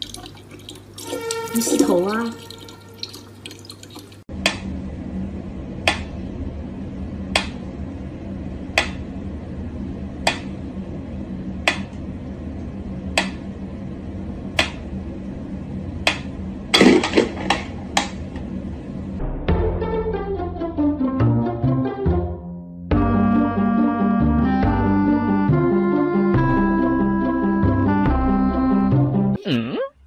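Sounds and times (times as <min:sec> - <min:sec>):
steady low hum: 0:04.2 - 0:19.5.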